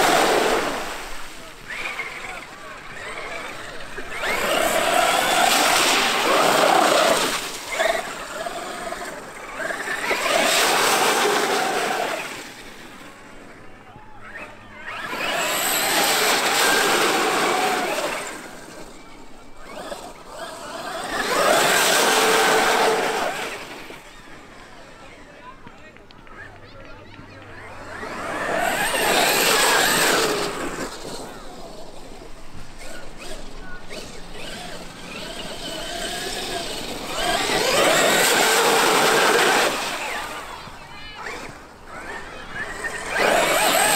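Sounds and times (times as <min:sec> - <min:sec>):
electric motor whining: 0:00.0 - 0:12.7, 0:14.2 - 0:24.4, 0:27.5 - 0:31.5, 0:32.6 - 0:43.9
electric motor whine: 0:32.7 - 0:43.9.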